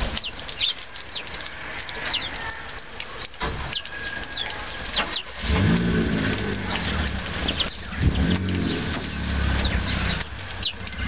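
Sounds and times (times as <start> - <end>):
small birds chirping: 0.0 - 11.0
motor vehicle engine hum: 4.2 - 11.0.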